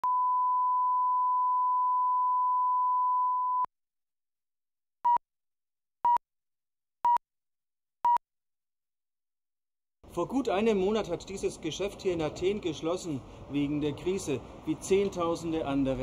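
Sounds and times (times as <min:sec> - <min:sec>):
short countdown beeps: 0:07.0 - 0:07.2.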